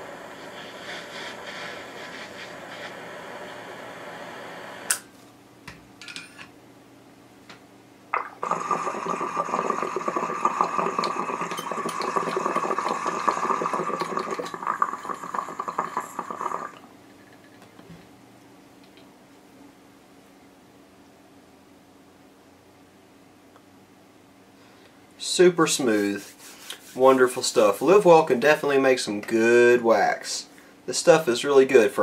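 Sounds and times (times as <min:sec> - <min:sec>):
butane torch hissing: 0:00.0 - 0:05.0, 0:08.2 - 0:16.8
water bubbling through glass pipe: 0:08.2 - 0:16.8.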